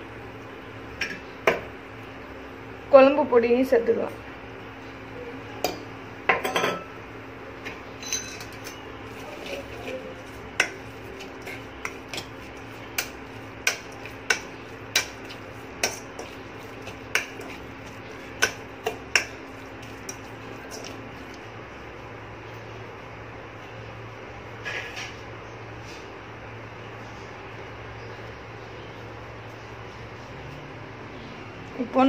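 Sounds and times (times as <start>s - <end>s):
low steady hum: 0.0s - 24.6s
metal spoon clinking in pot: 8.0s - 8.8s.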